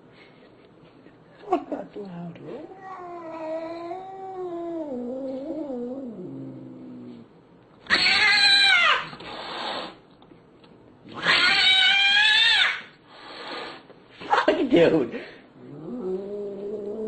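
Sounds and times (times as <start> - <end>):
cat yowling: 2.6 - 5.9, 7.9 - 9.2, 11.2 - 12.9
cat screeching: 7.8 - 9.9, 11.2 - 12.9.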